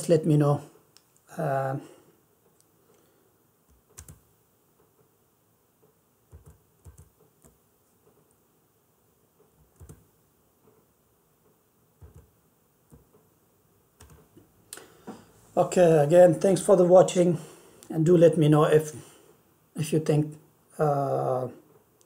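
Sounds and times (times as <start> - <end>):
keyboard and mouse clicks: 3.7 - 4.3, 6.3 - 8.4, 9.5 - 10.1, 12.0 - 13.2, 14.0 - 14.4.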